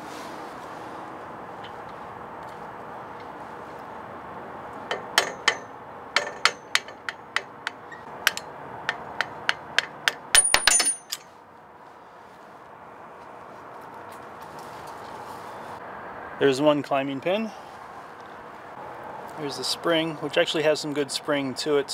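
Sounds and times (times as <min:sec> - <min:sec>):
hammer striking steel punch: 0:04.9 - 0:08.4, 0:09.2 - 0:11.2.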